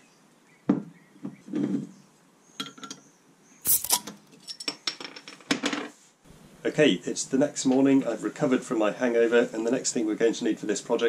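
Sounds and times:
bottle cap hiss: 3.6 - 4.1
metallic clinks of bottle opener: 3.6 - 4.7.

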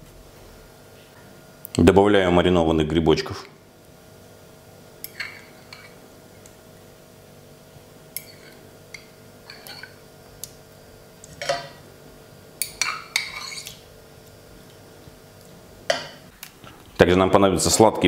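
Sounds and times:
cutlery clinking: 5.0 - 6.0, 8.1 - 10.0, 11.3 - 11.8, 12.6 - 13.8.

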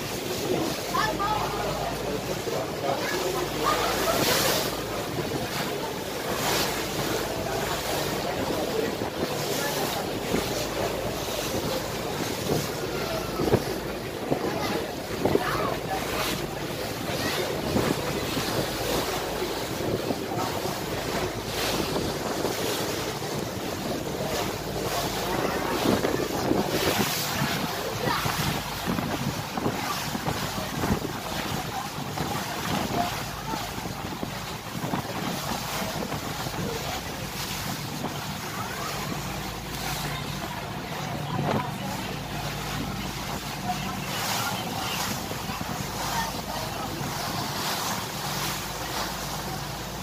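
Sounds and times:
ship engine drone: 0.0 - 50.0
water rushing past boat: 0.0 - 50.0
wind buffeting microphone: 0.0 - 50.0.

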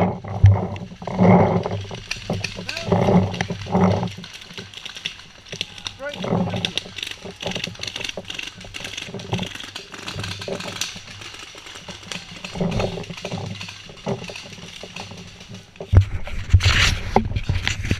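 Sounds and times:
sharp clicks and pops: 0.0 - 17.9
indistinct voices: 2.6 - 4.0, 5.5 - 8.1.

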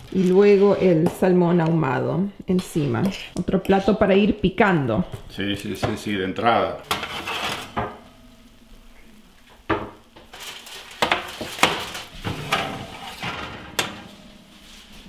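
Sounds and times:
dishes clinking and clattering: 11.0 - 14.3.

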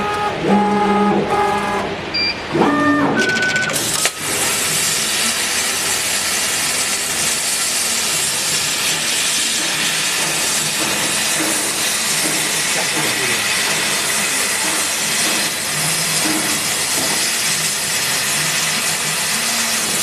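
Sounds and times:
horn-like buzzing tones: 0.0 - 3.6
loud steady gas jet hiss: 3.9 - 20.0.

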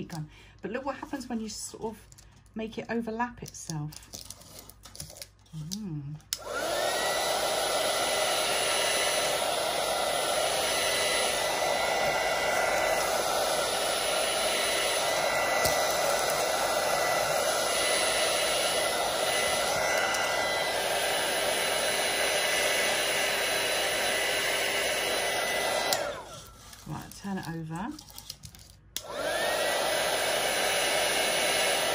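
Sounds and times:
heat gun switch: 6.3 - 26.4, 29.0 - 31.9
heat gun blowing whir: 6.3 - 27.2, 29.0 - 31.9.

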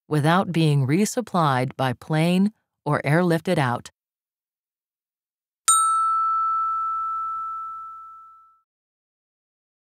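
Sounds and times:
bell-like ding: 5.7 - 8.6.

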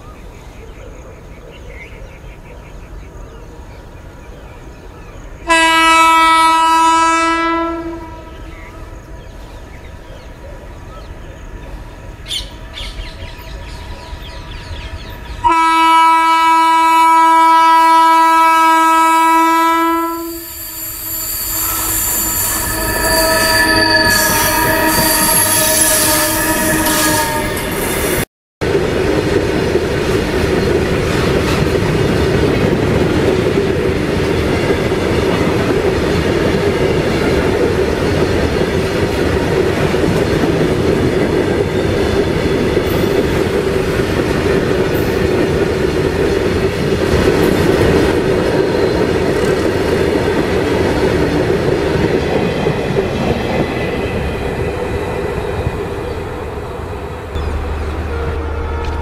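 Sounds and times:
freight wagons rumbling on rails: 19.6 - 59.0
faint wheel squeal: 20.3 - 27.2.

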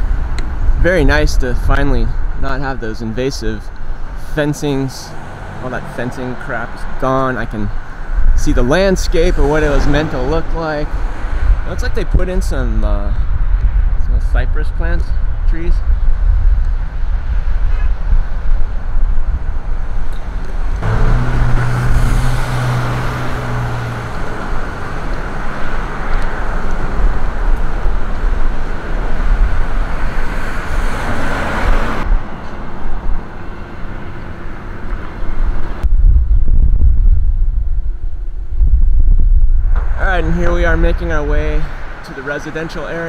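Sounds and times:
engine hum: 0.0 - 14.0, 16.8 - 43.0
rush of passing vehicles: 0.0 - 43.0
traffic rumble: 0.0 - 43.0.

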